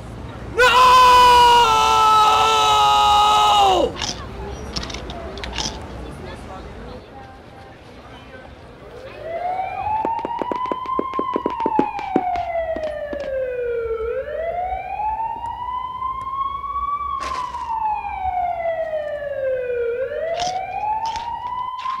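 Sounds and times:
police siren wailing: 0:08.8 - 0:22.0.

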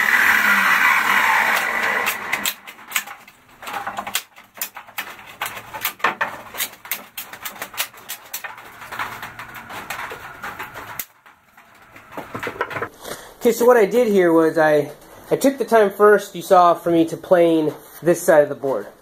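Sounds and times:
wood knocking and scraping: 0:00.8 - 0:13.0.

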